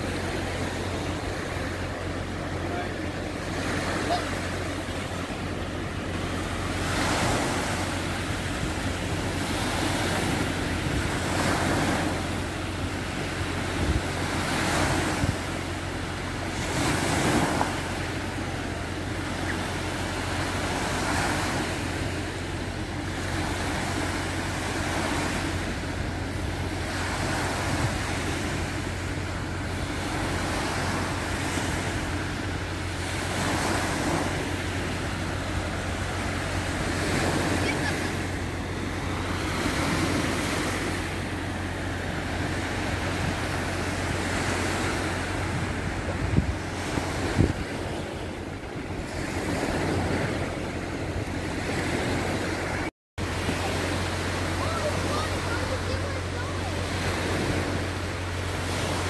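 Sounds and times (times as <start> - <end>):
small waves breaking on beach: 0.0 - 59.0
wind rumbling on microphone: 4.5 - 17.8, 25.2 - 59.0.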